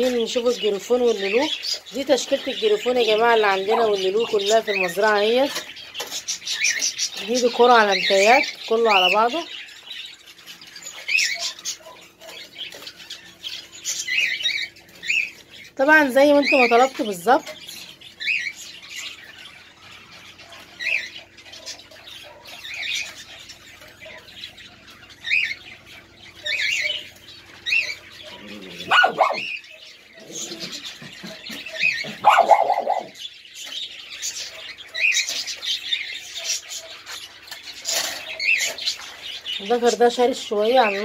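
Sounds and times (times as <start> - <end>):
small birds chirping: 0.0 - 41.0
small dogs barking: 11.3 - 12.6, 21.6 - 22.7, 27.8 - 33.2.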